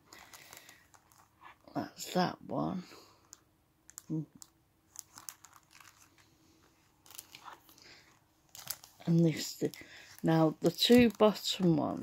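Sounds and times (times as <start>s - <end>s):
cellophane bags crinkling: 0.0s - 1.5s, 3.9s - 6.4s, 7.0s - 12.0s.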